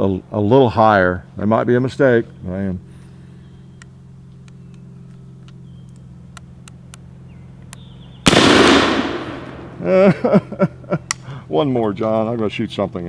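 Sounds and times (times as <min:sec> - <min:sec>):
steady low hum: 0:00.0 - 0:13.0
rifle shot with echo: 0:08.2 - 0:09.9.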